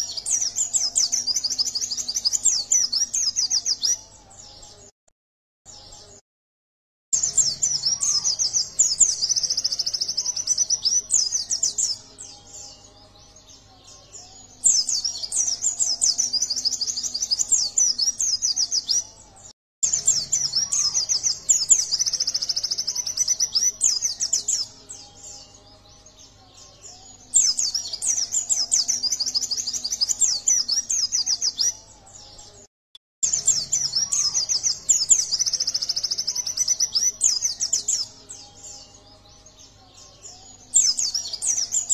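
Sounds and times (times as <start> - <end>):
bird twittering song: 0.0 - 4.9, 5.7 - 6.2, 7.2 - 41.9.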